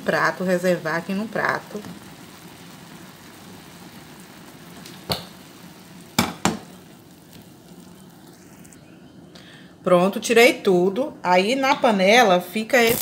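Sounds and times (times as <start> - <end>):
meat sizzling in a frying pan: 0.0 - 9.0
utensil knocks: 6.2 - 6.7.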